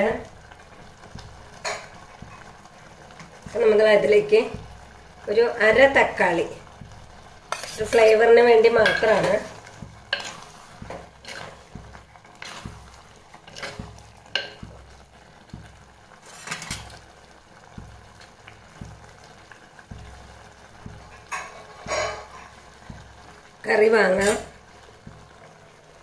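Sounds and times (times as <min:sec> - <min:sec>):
curry bubbling: 0:00.0 - 0:26.0
spoon scraping a clay pot: 0:07.5 - 0:08.2, 0:08.8 - 0:14.8, 0:16.2 - 0:17.0, 0:21.0 - 0:23.0.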